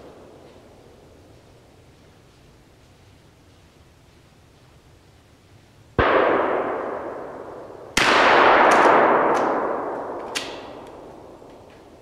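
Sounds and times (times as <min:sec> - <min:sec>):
gunshot echoing through woods: 0:06.0 - 0:12.0
gun jamming clicks: 0:10.2 - 0:11.6.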